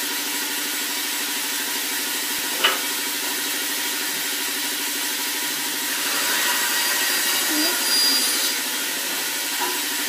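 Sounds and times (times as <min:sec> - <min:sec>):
bandsaw running: 0:00.0 - 0:10.0
bandsaw cutting board: 0:05.8 - 0:10.0.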